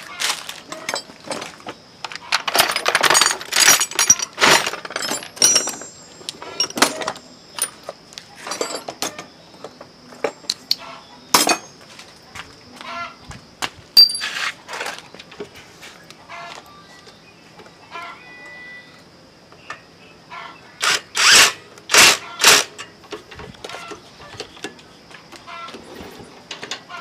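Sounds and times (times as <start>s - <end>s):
metal tools clinking: 0.6s - 9.3s, 10.2s - 11.8s, 14.0s - 15.0s.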